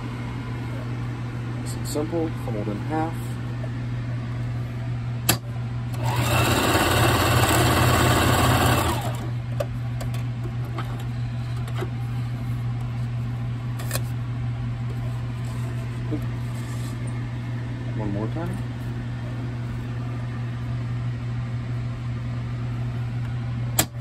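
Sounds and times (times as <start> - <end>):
steady low hum: 0.0 - 24.0
sewing machine stitching: 6.0 - 9.2.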